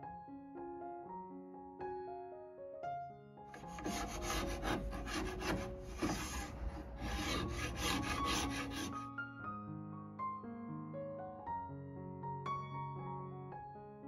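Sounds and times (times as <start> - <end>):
soft piano music: 0.0 - 14.0
abrasive tool scraping wood: 3.6 - 9.0.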